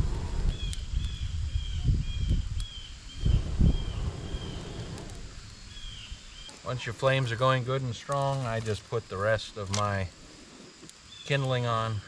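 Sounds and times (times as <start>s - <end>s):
breath blowing on fire: 0.0s - 6.5s.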